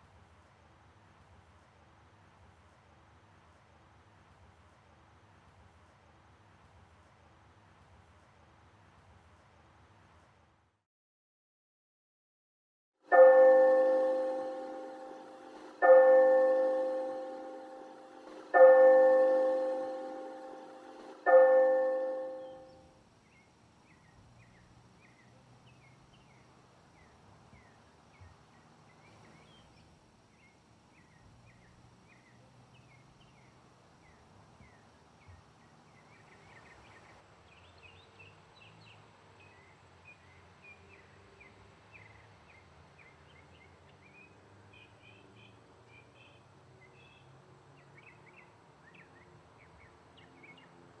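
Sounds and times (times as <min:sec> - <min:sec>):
bell-like ring: 0:13.1 - 0:22.8
birds chirping: 0:13.1 - 0:38.8.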